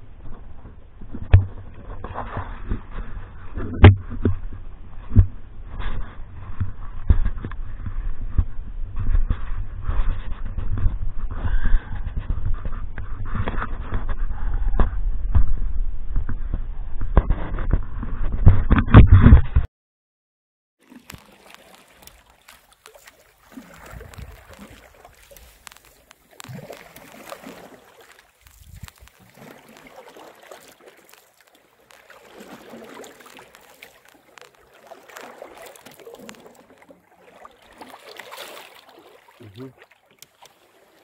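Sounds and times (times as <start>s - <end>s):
paddle splashing and gurgling: 20.8s - 41.0s.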